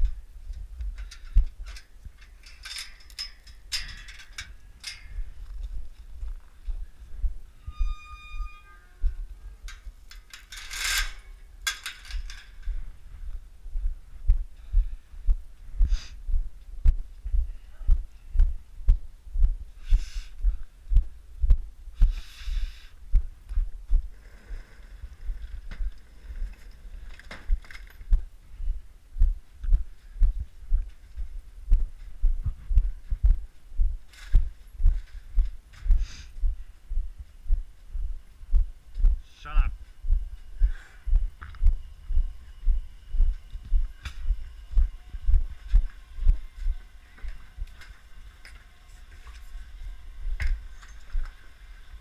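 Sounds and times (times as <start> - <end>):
rustles and scrapes: 0.0 - 13.2, 23.6 - 28.1
short high squeak: 7.5 - 9.1.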